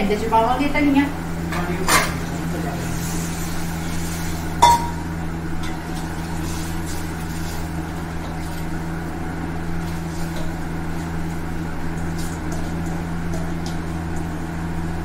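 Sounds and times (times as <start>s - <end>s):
steady low hum: 0.0s - 15.0s
steel bowl clinking on pot rim: 4.6s - 5.0s.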